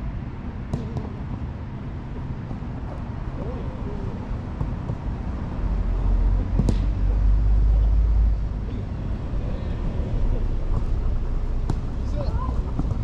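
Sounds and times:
ball being struck: 0:00.7 - 0:01.2, 0:06.6 - 0:06.9, 0:11.6 - 0:11.9
distant shouts of players: 0:12.0 - 0:12.8.

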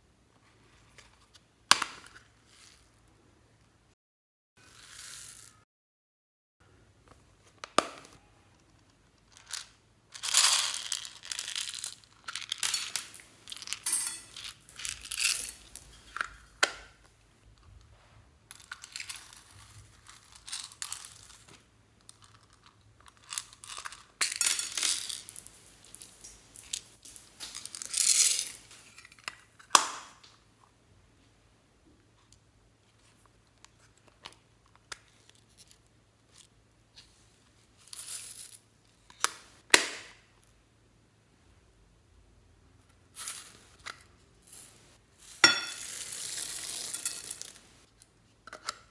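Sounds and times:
foam beads rattling and pouring: 0:04.6 - 0:05.6, 0:09.4 - 0:15.9, 0:45.8 - 0:47.7.

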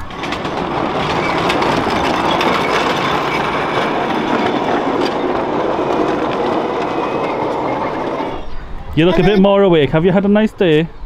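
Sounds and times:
miniature train wheels rumbling on track: 0:00.0 - 0:08.5.

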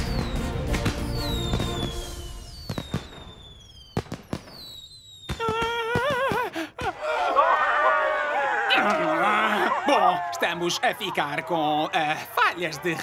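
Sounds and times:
firework whistles falling in pitch: 0:00.0 - 0:06.1
firework cracks and pops: 0:00.0 - 0:06.5
voices cheering: 0:05.4 - 0:13.0.

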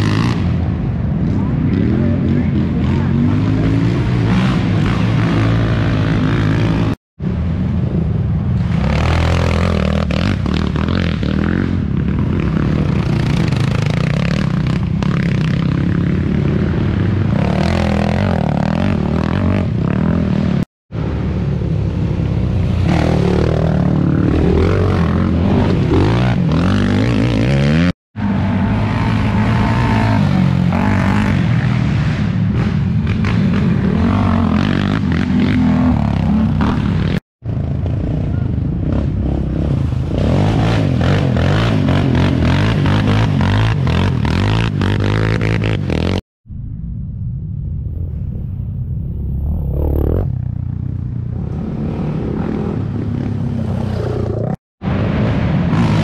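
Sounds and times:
quad engines revving: 0:00.0 - 0:07.0, 0:22.7 - 0:46.2.

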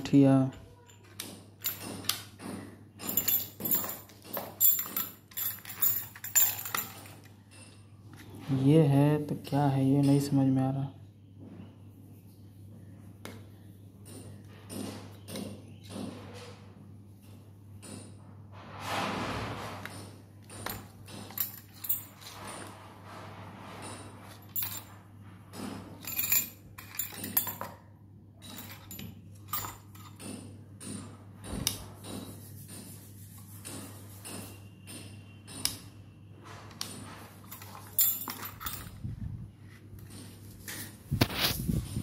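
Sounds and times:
keys jangling against metal lock: 0:03.0 - 0:07.8, 0:20.5 - 0:22.7, 0:26.0 - 0:27.8, 0:28.4 - 0:30.4, 0:37.4 - 0:39.1.

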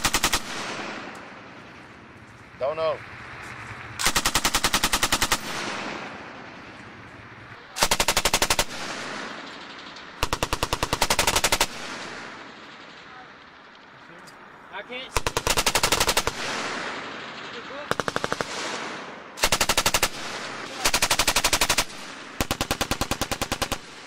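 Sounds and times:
machine gun bursts with echo: 0:00.0 - 0:01.9, 0:03.9 - 0:07.1, 0:07.7 - 0:13.9, 0:15.1 - 0:24.0.

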